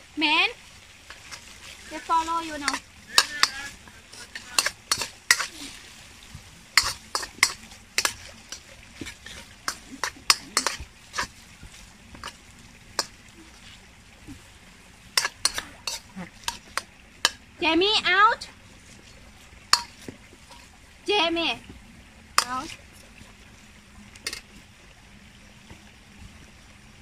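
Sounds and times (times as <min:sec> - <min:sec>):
faint frying sizzle: 0:00.0 - 0:27.0
utensil scraping metal pan: 0:01.1 - 0:05.8, 0:06.7 - 0:11.4, 0:12.2 - 0:13.6, 0:15.1 - 0:17.4, 0:19.7 - 0:20.7, 0:22.4 - 0:22.8, 0:24.2 - 0:24.5.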